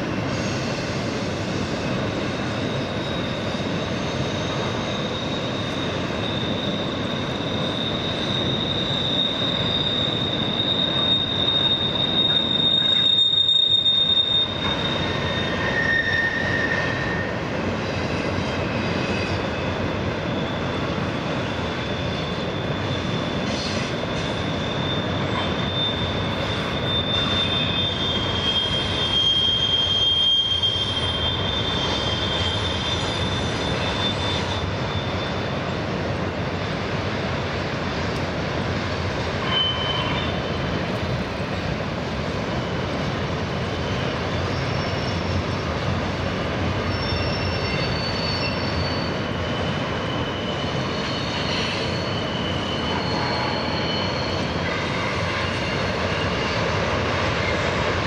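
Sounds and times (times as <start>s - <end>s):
high wheel squeal: 0.0s - 36.8s, 39.2s - 41.6s, 42.2s - 58.0s
freight cars rolling on rails: 0.0s - 58.0s.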